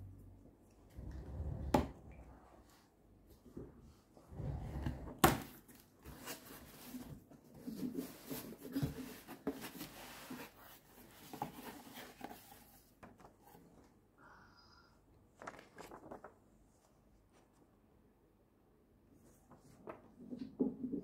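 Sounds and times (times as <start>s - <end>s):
paper leaflet rustling: 15.3s - 17.6s.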